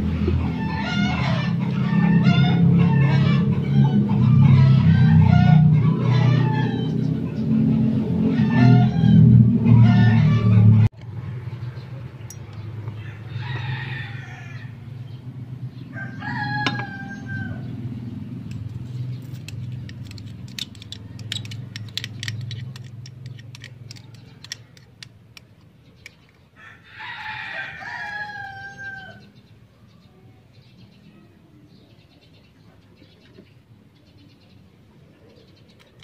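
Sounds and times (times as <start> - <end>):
rooster crowing: 8.3 - 10.9, 13.0 - 14.9, 15.9 - 17.8, 26.6 - 29.3.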